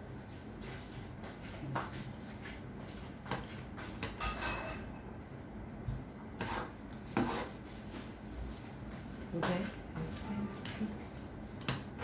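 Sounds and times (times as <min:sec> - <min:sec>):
utensils tapping and scraping dishes: 0:03.3 - 0:05.0.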